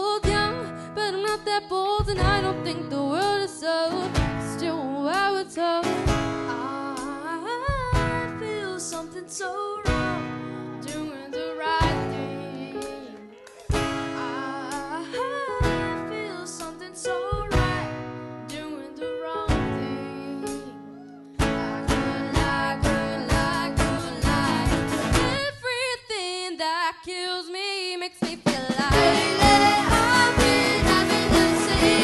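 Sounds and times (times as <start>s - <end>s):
keyboard: 0.0s - 25.5s, 28.8s - 32.0s
boy singing: 0.0s - 32.0s
drum kit beat: 2.0s - 2.7s, 6.0s - 9.1s, 9.9s - 11.2s, 12.8s - 15.0s, 15.6s - 16.1s, 17.2s - 18.1s, 21.4s - 25.4s, 28.2s - 32.0s
strummed acoustic guitar: 2.0s - 18.6s, 21.3s - 25.5s, 28.7s - 32.0s.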